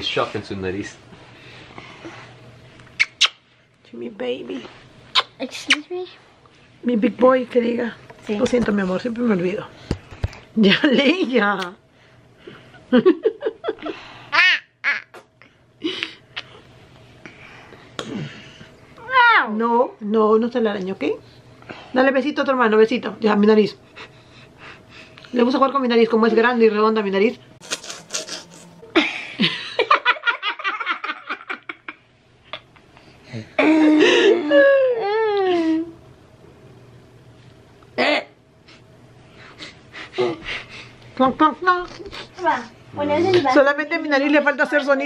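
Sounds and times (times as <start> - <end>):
woman giggling: 28.8 - 32.0, 33.6 - 35.9.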